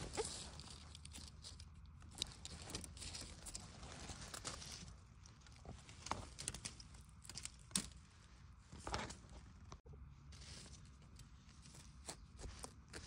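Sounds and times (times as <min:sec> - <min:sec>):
dry leaf litter rustling: 0:00.0 - 0:01.6, 0:10.3 - 0:13.0.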